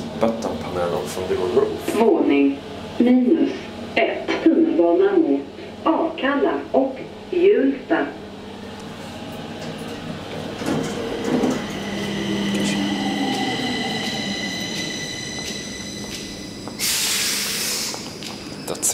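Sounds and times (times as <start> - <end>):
train electric whine: 0.0 - 18.9
low hum: 7.0 - 18.9
hissing air burst: 16.8 - 18.0.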